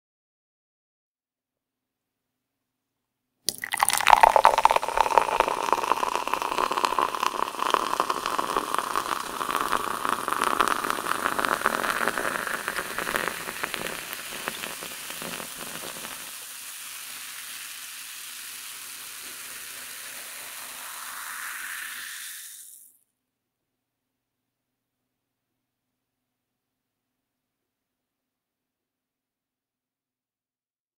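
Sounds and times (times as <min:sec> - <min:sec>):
bubbles fizzing: 0:03.5 - 0:23.0
drink pouring into a glass: 0:03.5 - 0:23.0.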